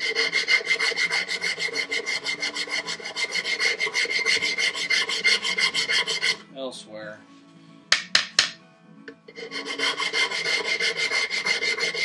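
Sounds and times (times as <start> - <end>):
sandpaper rasping on wood: 0.0 - 6.4, 9.4 - 12.0.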